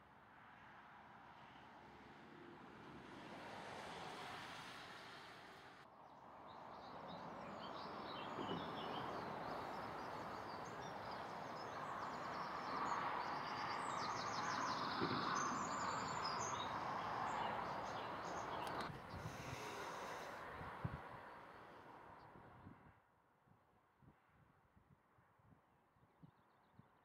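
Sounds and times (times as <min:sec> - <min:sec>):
songbirds chirping: 0:06.0 - 0:22.4.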